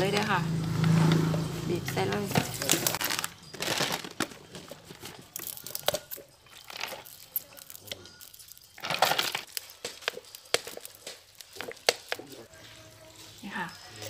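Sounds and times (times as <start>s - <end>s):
bottle and jar clinking: 1.3s - 12.5s.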